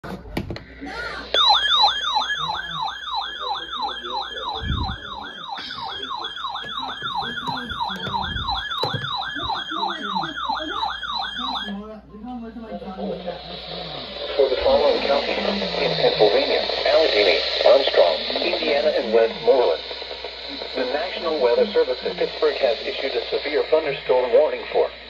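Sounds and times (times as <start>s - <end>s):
warbling siren alarm: 1.3s - 11.9s.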